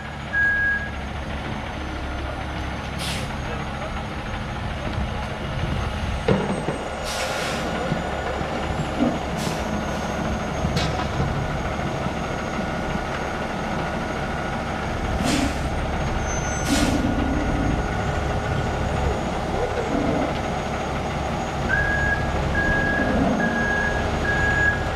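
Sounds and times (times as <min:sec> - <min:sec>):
diesel engine running: 0:00.0 - 0:24.9
short hisses: 0:15.2 - 0:15.7.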